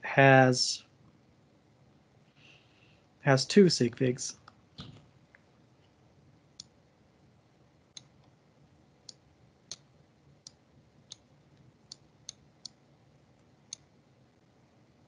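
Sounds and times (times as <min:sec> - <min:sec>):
computer mouse clicks: 0:07.9 - 0:08.4, 0:09.0 - 0:12.8.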